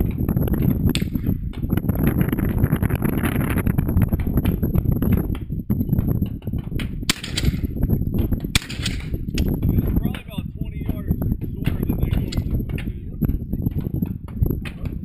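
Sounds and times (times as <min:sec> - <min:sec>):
wind rumble on microphone: 0:00.0 - 0:15.0
shotgun shots with echo: 0:07.1 - 0:07.7, 0:08.5 - 0:09.2.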